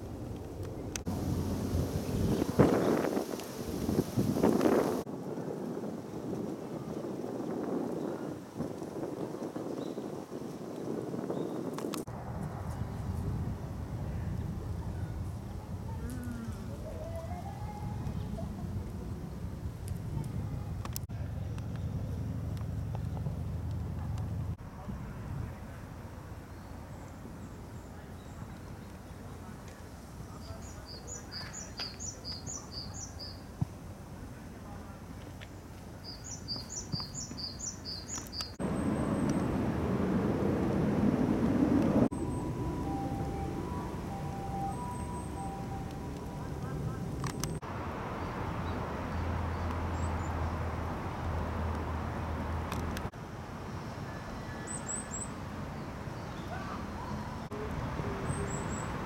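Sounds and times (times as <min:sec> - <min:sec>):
airplane passing low rumble: 0:00.0 - 0:04.1, 0:12.0 - 0:31.7, 0:38.6 - 0:59.0
outdoor background noise: 0:00.0 - 0:59.0
small bird chirping: 0:36.0 - 0:39.4
songbird singing two-note phrase: 0:42.1 - 0:46.7.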